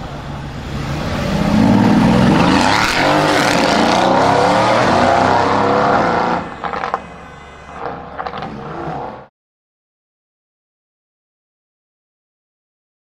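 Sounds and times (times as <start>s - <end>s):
car exhaust accelerating hard: 0.0s - 7.0s.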